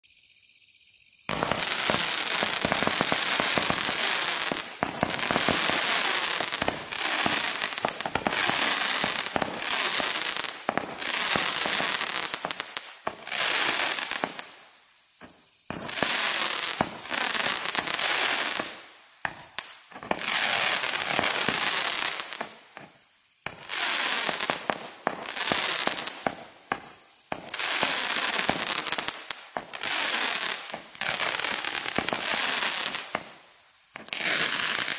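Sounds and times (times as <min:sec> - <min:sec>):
hissing crackling firework tails: 0:00.0 - 0:34.9
firework barrage firing: 0:01.3 - 0:14.6.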